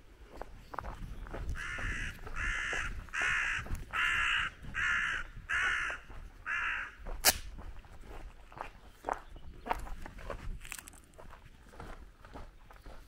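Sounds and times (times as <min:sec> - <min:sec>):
crow cawing: 0:01.5 - 0:07.0.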